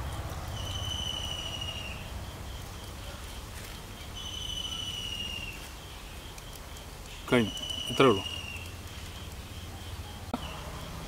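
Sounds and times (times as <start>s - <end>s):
high whistle-like animal call: 0.6s - 2.1s, 4.2s - 5.6s, 7.3s - 8.7s.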